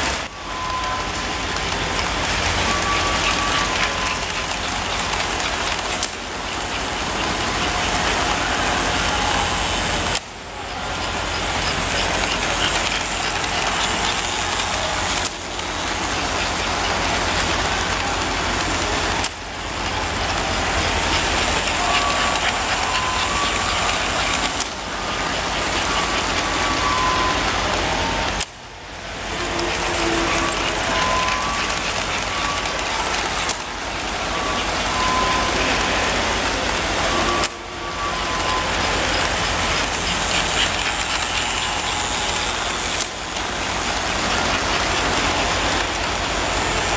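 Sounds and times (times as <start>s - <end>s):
toy train motors whirring: 0.0s - 46.9s
wheels rattling on track: 0.0s - 46.9s.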